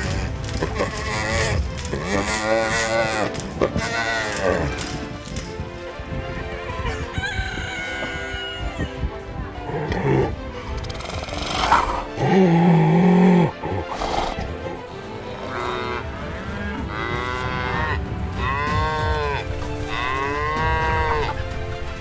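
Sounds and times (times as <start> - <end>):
cattle mooing: 0.0 - 4.9, 15.4 - 21.4.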